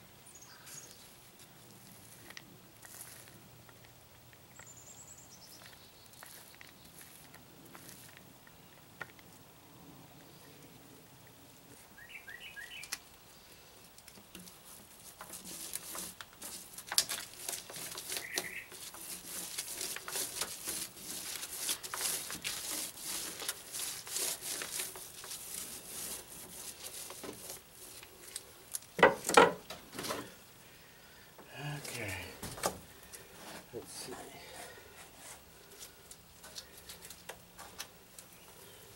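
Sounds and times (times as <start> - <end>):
roller crackling on fiberglass: 5.4 - 9.4, 14.0 - 29.4.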